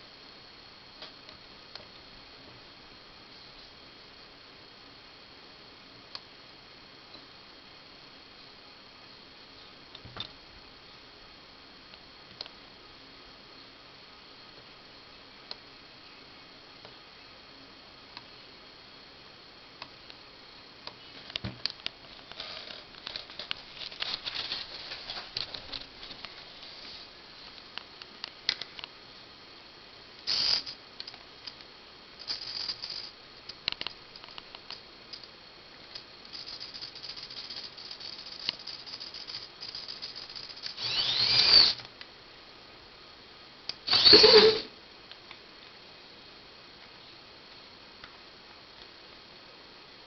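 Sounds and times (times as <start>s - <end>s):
small drive motors whirring: 30.3s - 30.8s, 36.3s - 41.9s, 43.7s - 44.7s.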